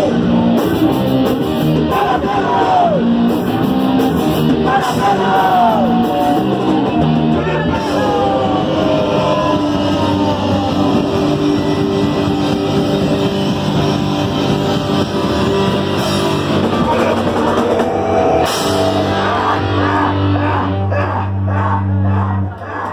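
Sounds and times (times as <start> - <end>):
rock band playing live: 0.0 - 22.9.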